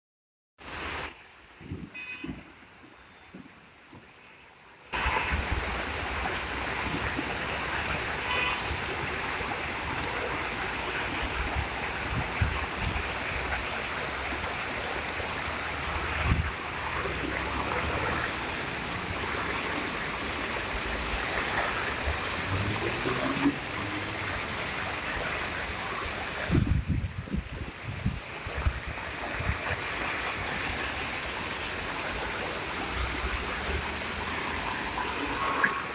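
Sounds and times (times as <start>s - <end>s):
heavy rain: 0.6s - 35.9s
rainwater rushing down stone steps: 0.6s - 35.9s.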